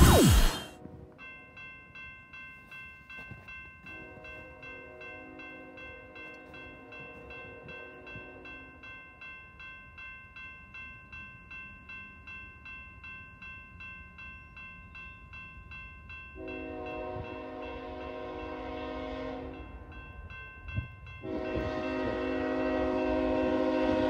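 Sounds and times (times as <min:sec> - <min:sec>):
railroad crossing bell ringing: 0:00.4 - 0:24.0
locomotive horn: 0:16.4 - 0:19.8, 0:21.2 - 0:24.0.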